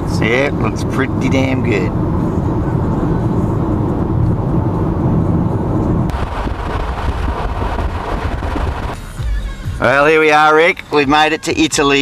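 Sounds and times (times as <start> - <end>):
wind and tyre noise: 0.0 - 9.0
car road and engine noise: 0.0 - 12.0.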